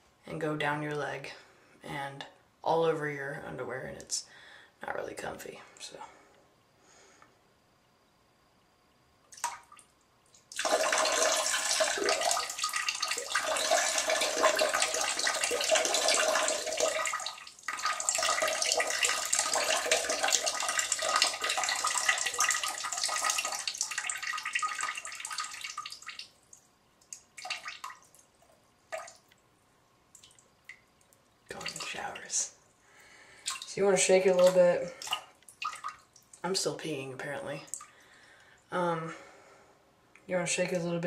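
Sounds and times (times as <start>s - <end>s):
drips and dribbles: 9.3s - 29.4s, 30.1s - 32.6s, 33.4s - 36.6s
urine splashing into toilet water: 9.3s - 29.4s, 33.4s - 36.4s.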